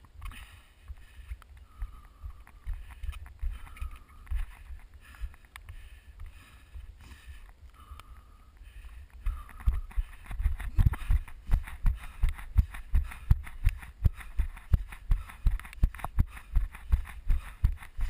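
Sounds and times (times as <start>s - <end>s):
heavy breathing: 0.2s - 18.0s
runner's footfalls: 9.3s - 18.0s.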